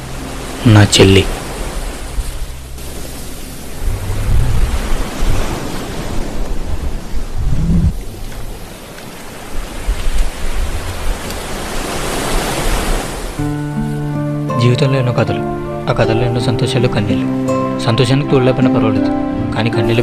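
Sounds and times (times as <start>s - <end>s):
surf washing onto sand: 0.0s - 14.0s
wind buffeting microphone: 1.4s - 13.4s.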